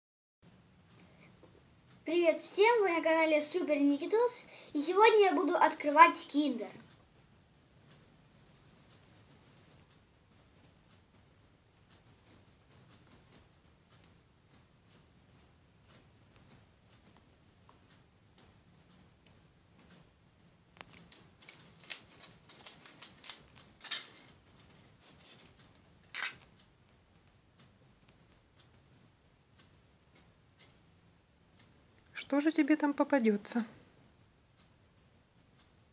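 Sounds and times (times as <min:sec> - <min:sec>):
foil wrapper crinkling: 0:21.0 - 0:24.4.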